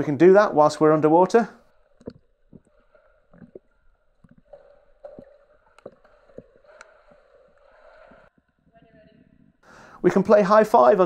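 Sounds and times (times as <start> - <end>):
pool water gurgling and sloshing: 0.0 - 11.0
faint clicks and knocks: 1.8 - 9.7.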